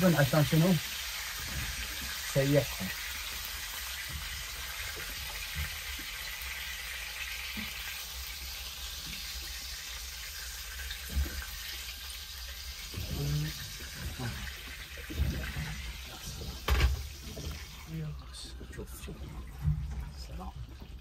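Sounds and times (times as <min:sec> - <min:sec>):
burger patties sizzling in a pan: 0:00.0 - 0:13.6.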